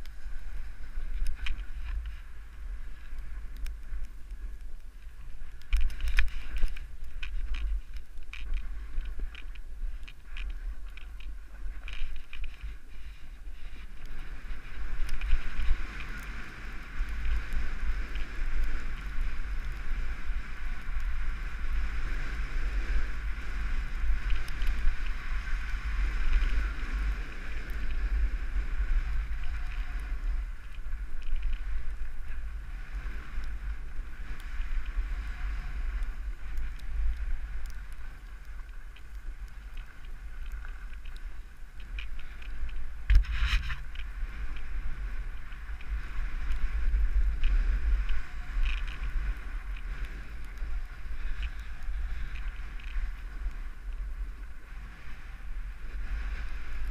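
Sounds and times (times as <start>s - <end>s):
wind buffeting microphone: 0.0s - 56.9s.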